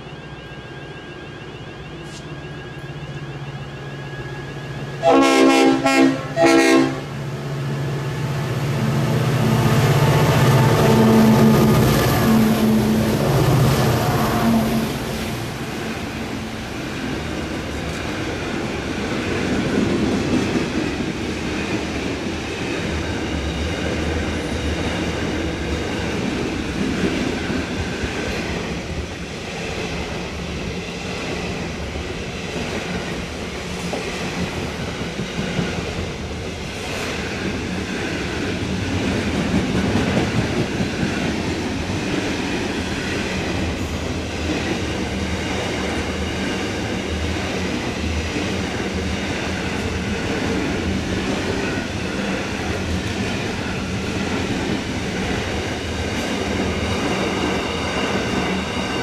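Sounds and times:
locomotive horn blasts: 5.0s - 7.2s, 9.8s - 13.0s.

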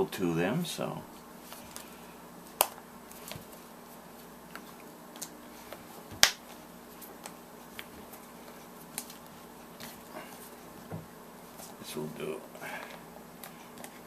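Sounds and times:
loud snaps: 6.2s - 6.5s.

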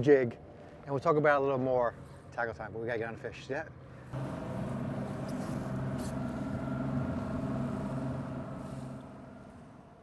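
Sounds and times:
boat motor running: 4.2s - 10.0s.

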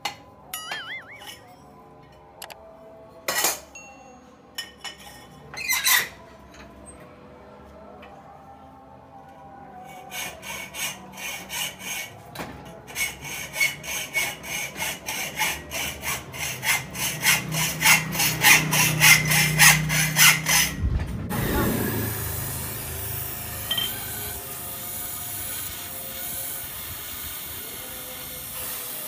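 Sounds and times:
hacksaw cutting steel pipe: 9.9s - 20.8s, 21.7s - 27.6s.

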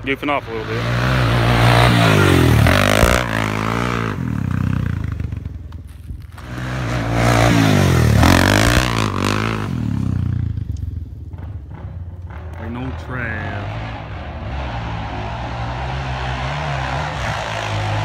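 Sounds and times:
quad bike engines revving: 0.0s - 18.0s.

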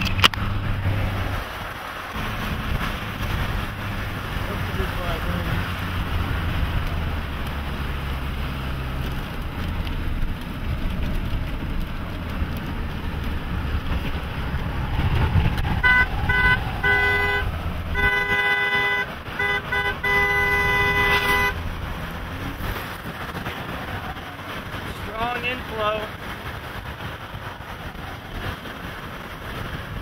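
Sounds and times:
road and wind noise: 0.0s - 30.0s
car horn honking: 15.8s - 21.6s.

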